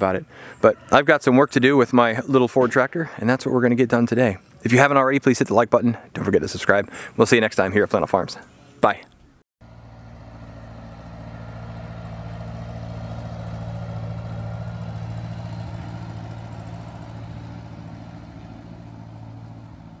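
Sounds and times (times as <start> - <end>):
tractor engine driving past: 9.6 - 20.0.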